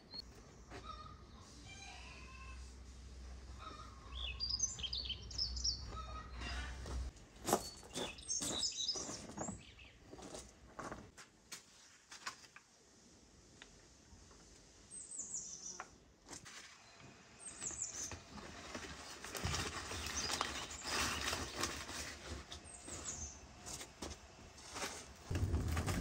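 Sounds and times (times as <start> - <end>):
bird chirping: 3.6 - 6.7, 7.6 - 10.0
fire crackling: 25.2 - 26.0.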